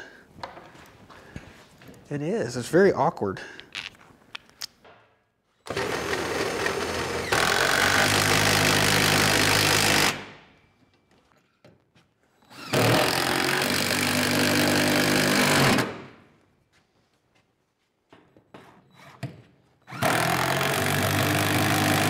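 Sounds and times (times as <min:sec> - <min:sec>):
power driver driving screws: 0:05.7 - 0:10.2, 0:12.5 - 0:16.0, 0:19.9 - 0:22.0.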